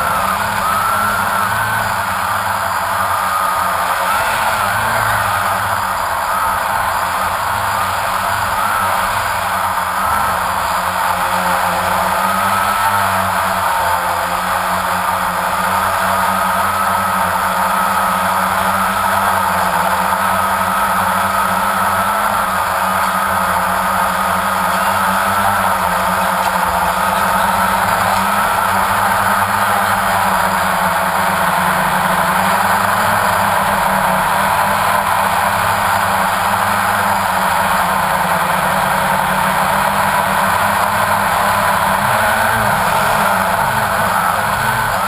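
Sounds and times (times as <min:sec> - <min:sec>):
drone propellers whining: 0:00.0 - 0:45.0.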